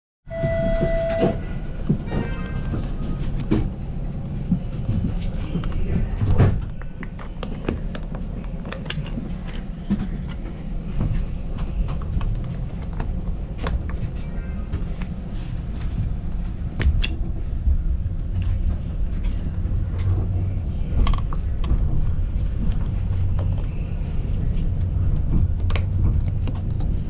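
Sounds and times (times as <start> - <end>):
brief pitched tone: 0.3 - 1.6
streetcar rumbling on rails: 0.3 - 27.0.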